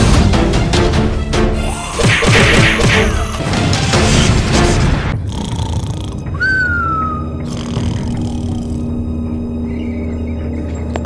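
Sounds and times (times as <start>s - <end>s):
dramatic background music: 0.0s - 11.0s.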